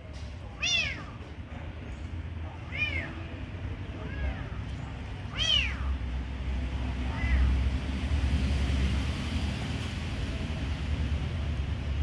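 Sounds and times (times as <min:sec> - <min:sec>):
kitten meowing: 0:00.6 - 0:01.2, 0:02.6 - 0:03.2, 0:05.3 - 0:06.0, 0:07.0 - 0:07.6.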